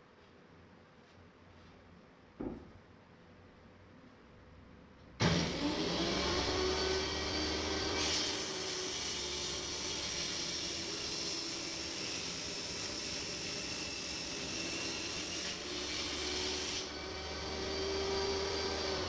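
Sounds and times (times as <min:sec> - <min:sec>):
table saw cutting wood: 0:05.2 - 0:19.0.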